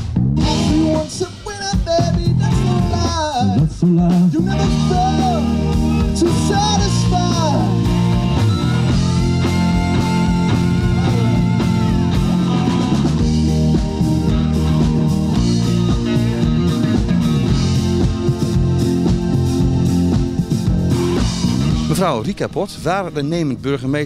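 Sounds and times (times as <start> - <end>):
rock band playing live: 0.0 - 23.0
person singing: 0.4 - 8.0, 9.1 - 13.1.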